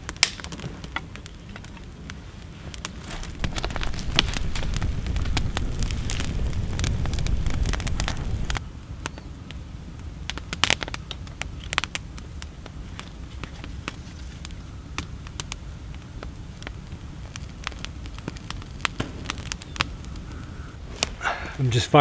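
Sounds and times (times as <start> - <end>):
campfire crackling and popping: 0.0 - 22.0
low steady rumble: 3.0 - 9.0.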